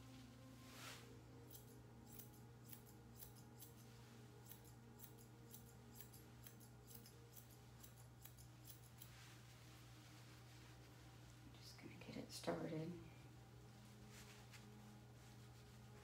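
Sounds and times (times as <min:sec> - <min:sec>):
low hum: 0:00.0 - 0:16.0
scissors snipping: 0:01.5 - 0:03.8, 0:04.4 - 0:09.1.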